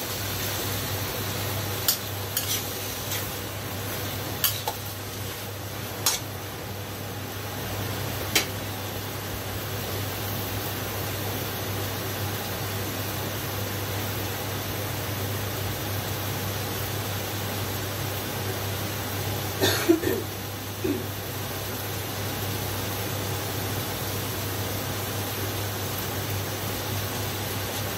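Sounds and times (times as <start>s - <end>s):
steady hiss: 0.0s - 18.2s.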